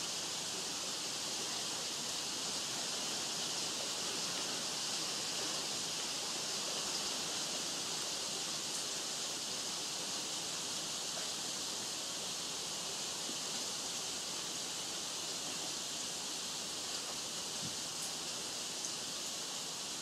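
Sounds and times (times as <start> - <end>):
outdoor ambience hiss: 0.0 - 20.0.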